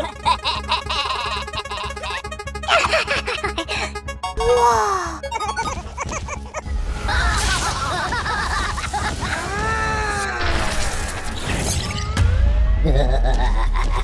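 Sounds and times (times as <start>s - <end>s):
soundtrack music: 0.0s - 9.2s.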